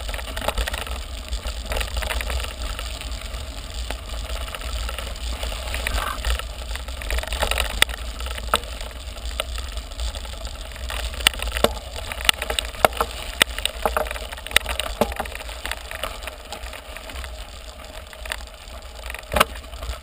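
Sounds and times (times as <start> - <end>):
bike tyres rumbling on gravel: 0.0 - 20.0
clicks and rattles of bike: 0.0 - 20.0.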